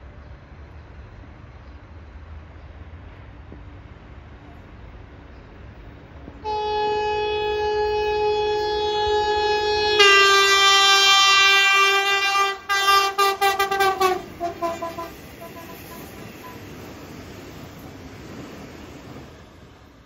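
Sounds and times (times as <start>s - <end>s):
train horn sounding: 6.4s - 16.7s.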